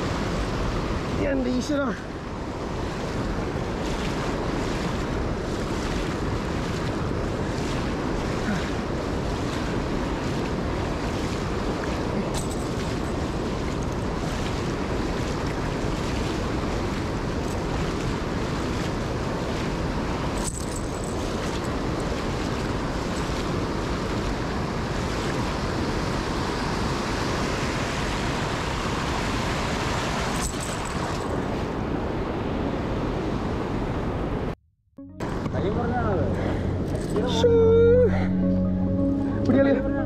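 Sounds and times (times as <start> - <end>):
moving water: 0.0 - 32.7
wind buffeting microphone: 2.1 - 27.4.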